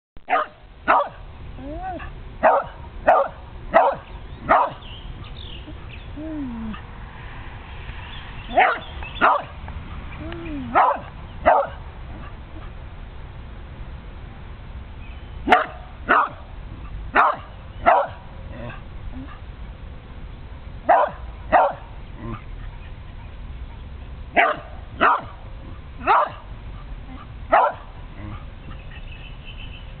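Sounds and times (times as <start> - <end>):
dog barking: 0.2 - 1.2, 1.9 - 5.9, 8.5 - 9.6, 10.7 - 12.8, 15.5 - 19.4, 20.9 - 22.8, 24.4 - 28.9.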